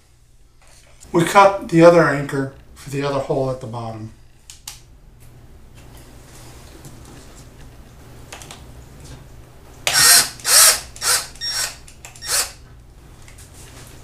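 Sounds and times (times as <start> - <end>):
cordless drill bursts: 9.8 - 12.6.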